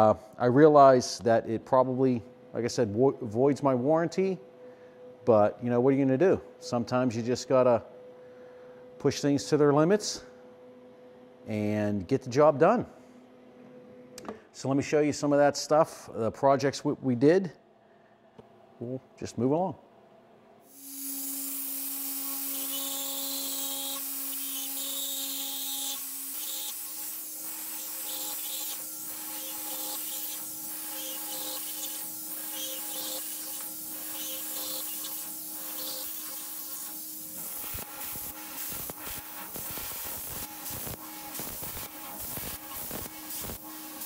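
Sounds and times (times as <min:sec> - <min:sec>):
high hiss of cutting: 0:20.7 - 0:44.0
router spindle whine: 0:20.7 - 0:44.0.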